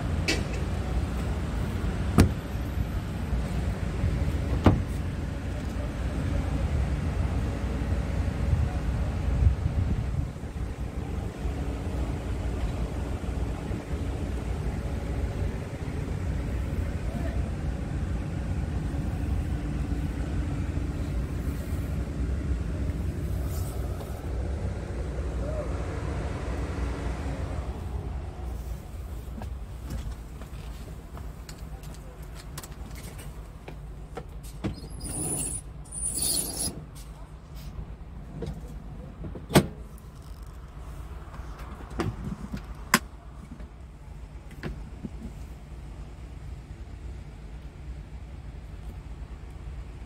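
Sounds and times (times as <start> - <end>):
diesel engine idling: 0.0 - 34.6.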